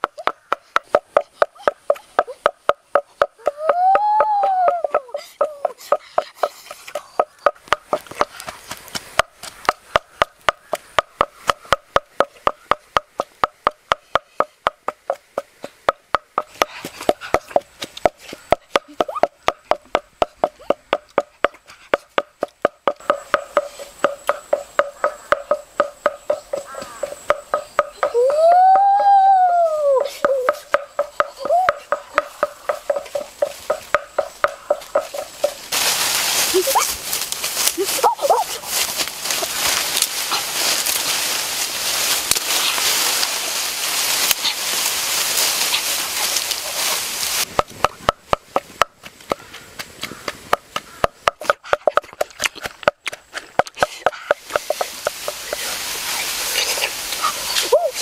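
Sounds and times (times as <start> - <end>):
wooden pestle pounding in mortar: 0.0 - 29.0, 30.0 - 35.7, 47.5 - 55.6.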